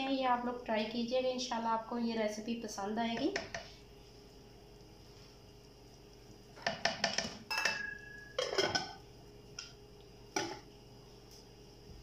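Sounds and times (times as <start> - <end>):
metal cookware clattering: 6.6 - 9.0
metallic ring: 7.5 - 8.4.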